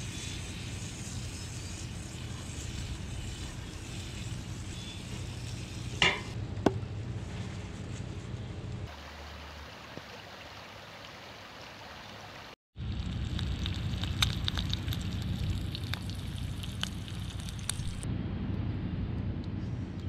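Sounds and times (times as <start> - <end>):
egg sizzling in skillet: 0.0 - 6.4, 12.9 - 18.0
creek water flowing: 8.9 - 12.6
campfire crackling: 12.8 - 18.1.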